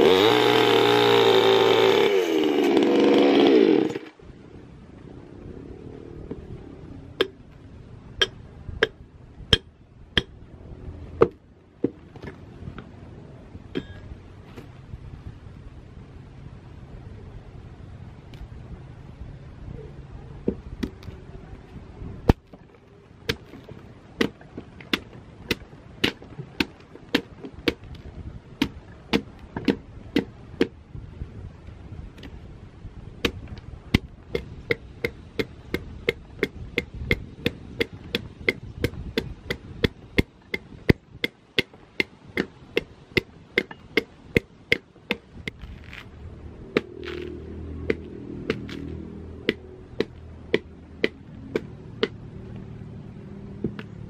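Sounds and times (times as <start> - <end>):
machete chopping wood: 23.3 - 28.0, 28.6 - 30.8, 33.2 - 46.0, 46.7 - 52.2.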